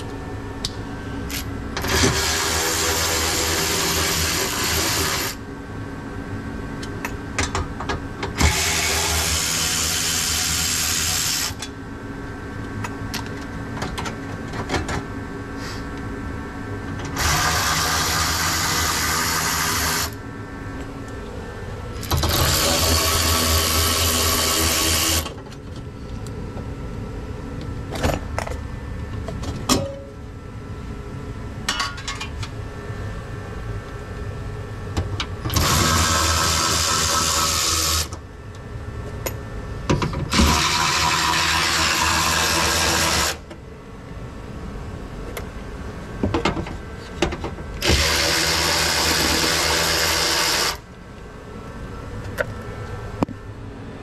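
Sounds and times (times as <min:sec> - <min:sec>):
cordless power ratchet whirring: 0:08.4 - 0:11.6, 0:22.0 - 0:25.3, 0:35.5 - 0:38.2, 0:40.3 - 0:43.4, 0:47.8 - 0:50.8.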